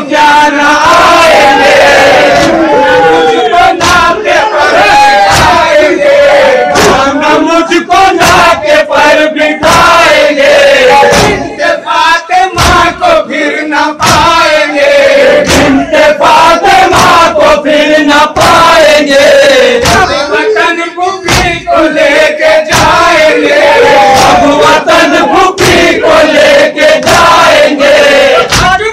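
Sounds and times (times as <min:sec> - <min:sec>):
men chanting in unison: 0:00.0 - 0:28.9
hands striking chests: 0:03.7 - 0:04.2, 0:05.3 - 0:05.7, 0:06.7 - 0:07.2, 0:08.2 - 0:08.6, 0:11.0 - 0:11.6, 0:12.6 - 0:13.0, 0:14.0 - 0:14.4, 0:15.4 - 0:15.9, 0:19.8 - 0:20.2, 0:21.3 - 0:21.7, 0:22.7 - 0:23.2, 0:25.6 - 0:26.0, 0:28.4 - 0:28.8.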